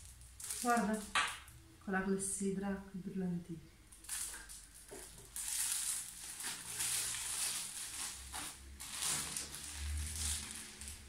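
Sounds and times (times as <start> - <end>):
plastic bags crinkling: 0.0 - 1.6, 3.9 - 11.0.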